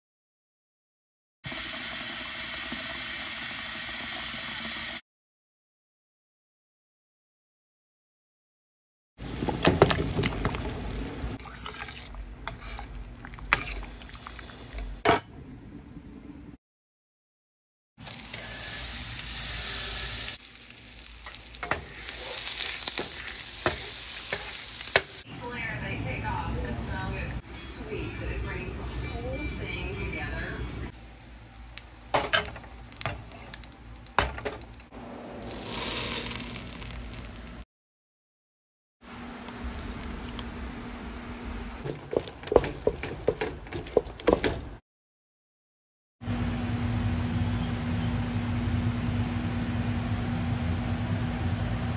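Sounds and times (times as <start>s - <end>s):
boiling water bubbling: 9.2s - 12.4s, 39.3s - 41.1s
hot butter sizzling: 18.0s - 25.2s, 31.0s - 34.7s, 35.4s - 37.6s.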